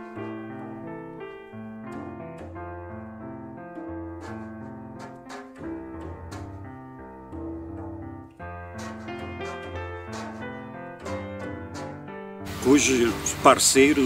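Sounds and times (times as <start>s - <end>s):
piano background music: 0.0s - 14.0s.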